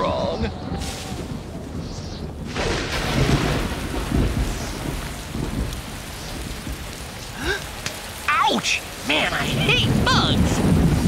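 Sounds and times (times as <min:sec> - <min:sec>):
heavy rain pouring: 0:00.0 - 0:11.0
low thunder rumbling: 0:00.0 - 0:11.0.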